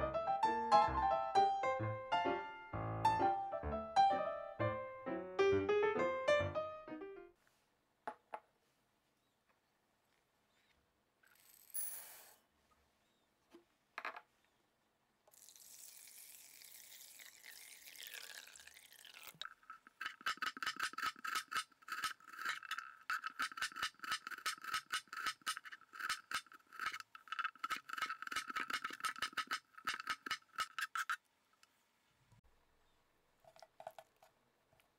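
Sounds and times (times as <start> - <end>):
water pouring over rice: 15.3 - 20.5.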